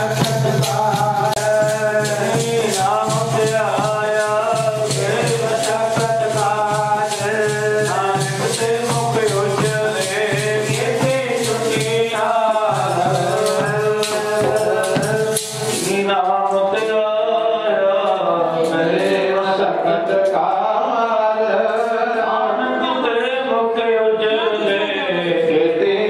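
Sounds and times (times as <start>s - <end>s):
hand drums: 0.0s - 17.0s
rattling percussion: 0.0s - 20.8s
people singing: 0.0s - 26.0s.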